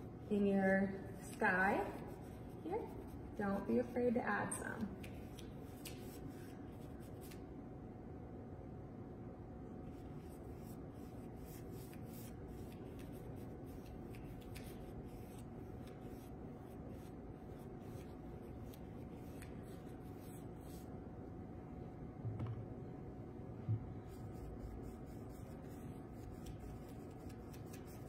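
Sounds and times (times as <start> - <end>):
room hum: 0.0 - 28.0.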